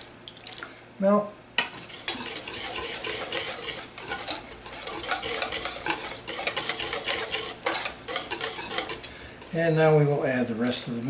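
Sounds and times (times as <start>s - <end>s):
whisk scraping metal bowl: 1.7s - 9.8s
whisk clattering: 1.8s - 9.6s.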